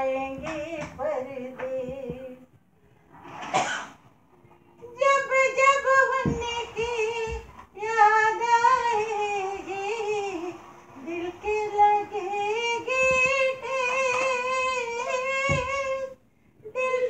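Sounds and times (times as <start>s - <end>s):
high voice singing slow melody: 4.8s - 17.0s.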